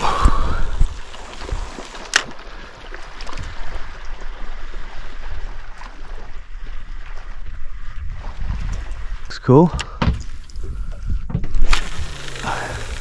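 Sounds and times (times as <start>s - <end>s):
wind rumble on microphone: 0.0s - 1.8s, 5.2s - 13.0s
water sloshing against boat hull: 0.0s - 13.0s.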